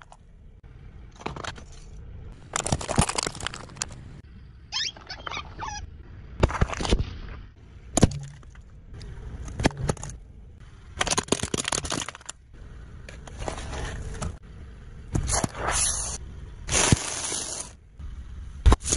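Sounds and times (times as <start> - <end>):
car tyre crushing plastic objects: 1.1 - 4.2, 7.9 - 10.2, 10.8 - 14.4, 15.1 - 17.8.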